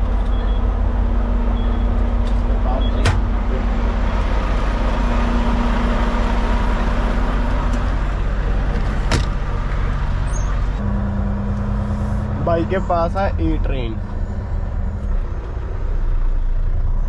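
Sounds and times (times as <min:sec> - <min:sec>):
steady hum: 0:00.0 - 0:17.0
truck engine rumbling: 0:00.0 - 0:17.0.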